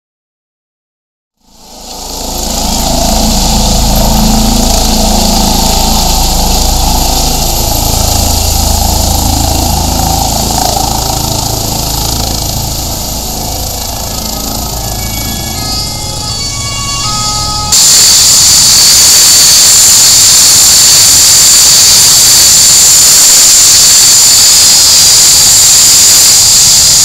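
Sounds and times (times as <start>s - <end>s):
helicopter rotor and turbines: 1.4s - 27.0s
high turbine whine: 1.4s - 27.0s.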